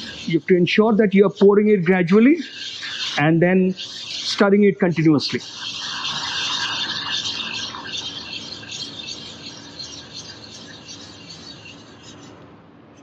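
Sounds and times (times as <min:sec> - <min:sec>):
liquid pouring into milk hissing: 0:02.0 - 0:11.0.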